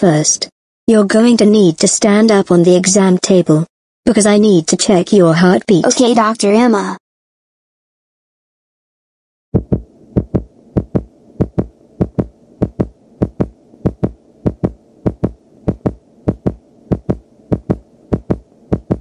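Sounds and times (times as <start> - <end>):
faint hum: 9.6 - 19.0
heartbeat thumps: 9.6 - 19.0.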